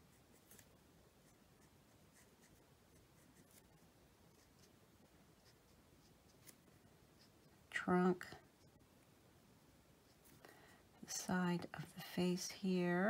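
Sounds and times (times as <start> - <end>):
marker scratching on card: 0.1 - 4.8.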